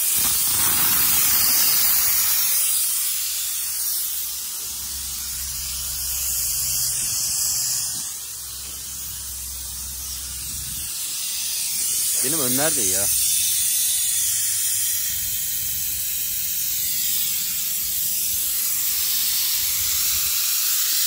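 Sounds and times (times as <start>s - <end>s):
steady hiss: 0.0s - 21.0s
low hum: 0.2s - 12.0s.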